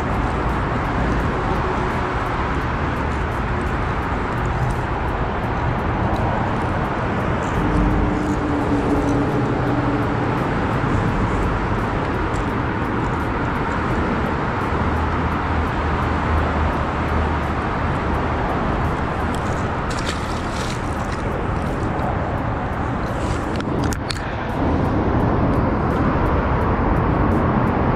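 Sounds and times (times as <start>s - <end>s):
heavy vehicle rumble: 0.0s - 27.9s
road traffic drone: 0.0s - 27.9s
fish splashing into water: 19.3s - 21.9s.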